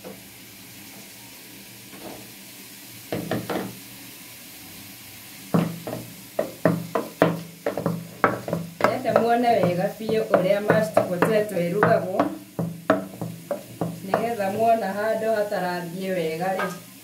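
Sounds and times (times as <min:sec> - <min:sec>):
pot and spoon knocking: 0:05.6 - 0:14.8.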